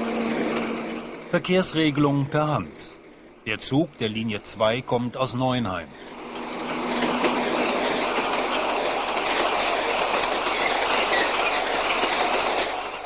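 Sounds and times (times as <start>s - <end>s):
tram wheels rumbling on rails: 0.0s - 13.0s.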